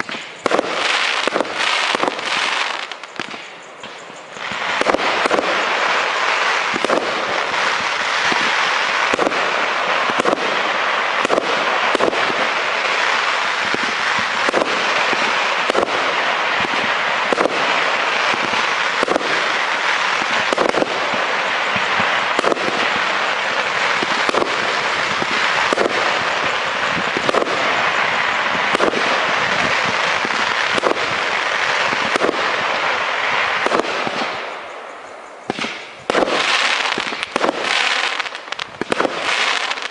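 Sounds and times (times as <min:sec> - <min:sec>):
firework crackle: 0:00.0 - 0:39.9
firework stars bursting: 0:00.0 - 0:39.9
firework launch thumps: 0:35.5 - 0:37.7.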